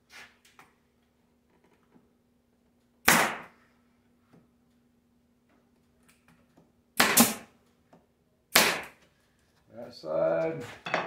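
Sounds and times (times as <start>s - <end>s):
nail gun firing: 3.0s - 3.5s, 7.0s - 7.5s, 8.5s - 9.0s.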